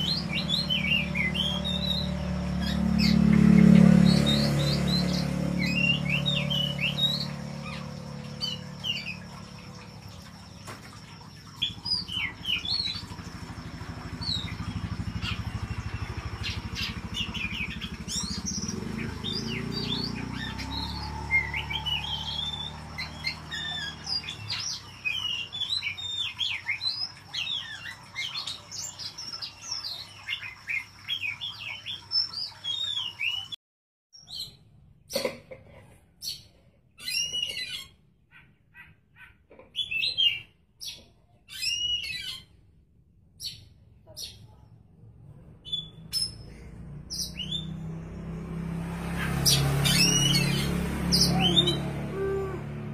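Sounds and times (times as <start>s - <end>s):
sharp bird calls: 0.0s - 33.6s, 49.0s - 52.9s
songbird singing: 0.0s - 33.6s, 45.3s - 52.9s.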